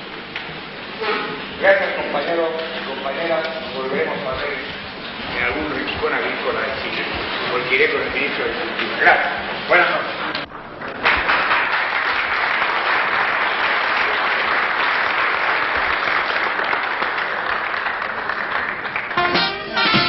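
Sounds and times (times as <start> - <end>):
audience applauding: 10.6 - 20.0
brass band music: 19.1 - 20.0.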